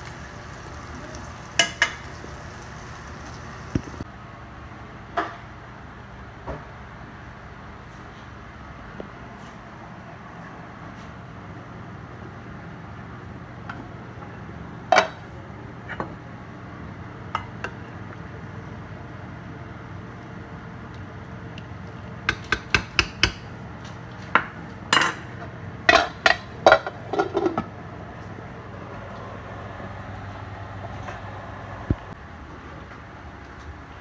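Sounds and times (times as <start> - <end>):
low steady hum: 0.0 - 4.2.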